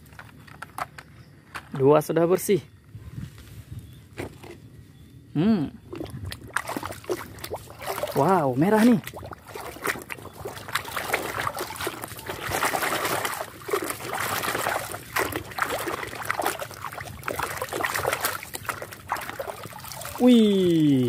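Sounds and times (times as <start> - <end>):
water sloshing in a basin: 5.8 - 21.0.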